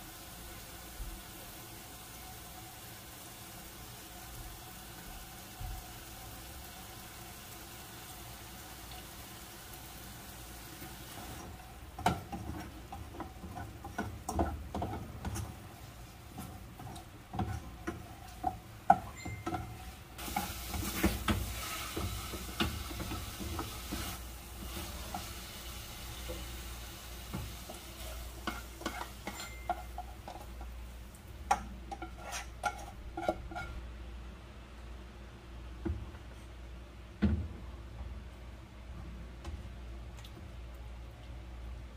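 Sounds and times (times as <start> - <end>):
meat sizzling in pan: 0.0 - 31.0
spatula scraping metal pan: 28.0 - 30.5, 31.9 - 33.8.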